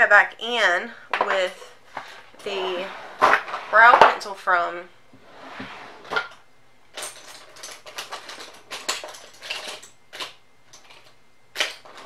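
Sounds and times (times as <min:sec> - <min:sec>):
makeup products clattering: 0:01.1 - 0:04.4, 0:07.0 - 0:12.0.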